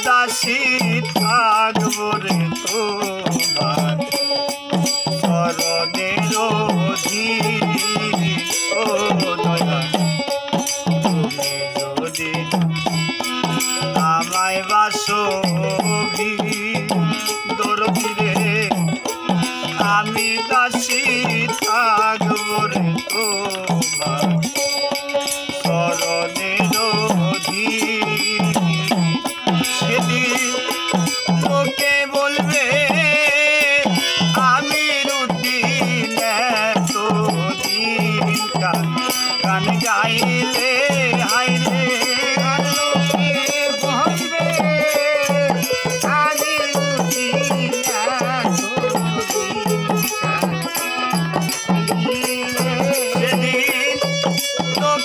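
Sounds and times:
harmonium: 0.0s - 55.0s
man singing folk song: 0.0s - 55.0s.

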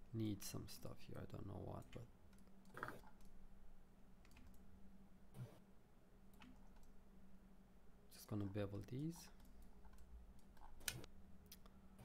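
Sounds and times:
faint steady hum: 0.0s - 12.0s
computer mouse and keyboard clicks: 4.2s - 4.6s, 9.2s - 11.7s.

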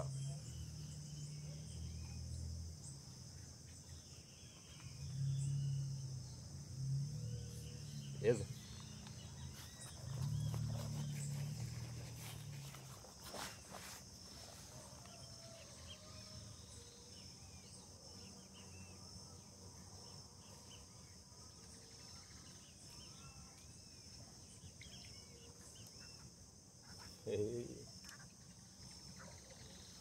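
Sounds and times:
insect chorus: 0.0s - 30.0s
bird chirps: 3.6s - 6.4s, 7.2s - 14.6s.

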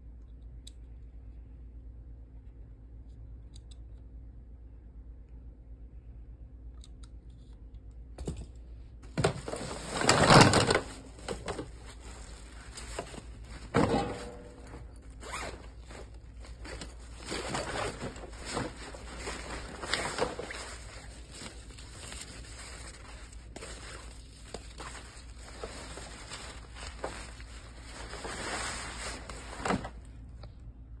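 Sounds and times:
fabric rustling and scraping: 9.1s - 30.2s
zipper rasping: 15.2s - 18.2s.

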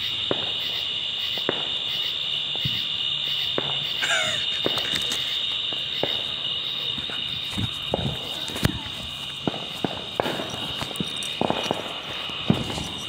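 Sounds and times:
night insects chorus: 0.0s - 13.0s
distant firework pops: 0.3s - 0.7s, 1.4s - 1.8s, 3.5s - 3.9s, 7.0s - 13.0s.

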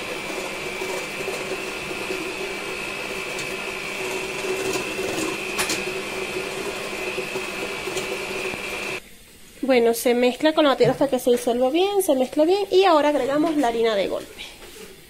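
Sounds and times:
electric hand mixer whining: 0.0s - 9.0s.

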